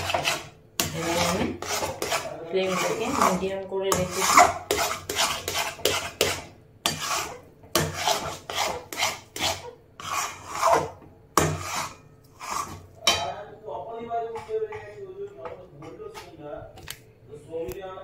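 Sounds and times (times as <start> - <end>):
metal spatula scraping a pan: 0.0 - 13.4.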